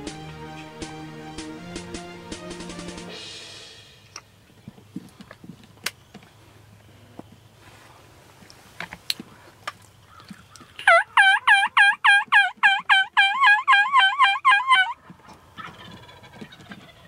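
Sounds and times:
turkey yelping: 10.1s - 17.0s.

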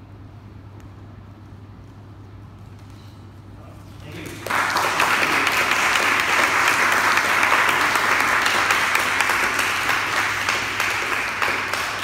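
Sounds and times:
small audience applauding: 4.0s - 12.0s.

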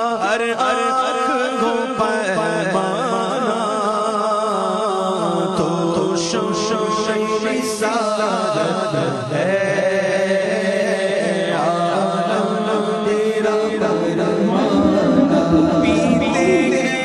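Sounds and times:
person chanting devotional song: 0.0s - 17.0s
background music: 14.0s - 17.0s.

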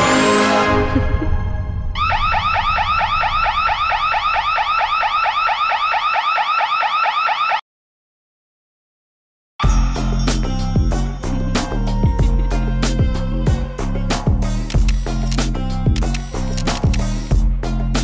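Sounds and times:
electronic alarm rising sweeps: 0.0s - 6.4s.

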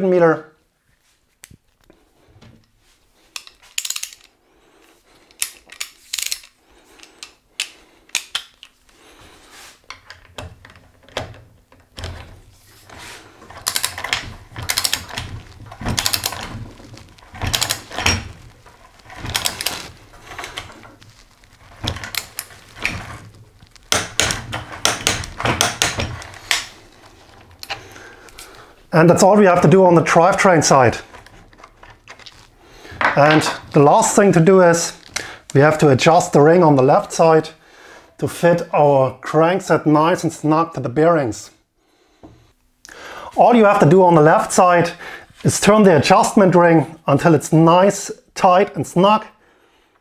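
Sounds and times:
metal tools clicking together: 3.4s - 4.3s, 5.3s - 8.7s.

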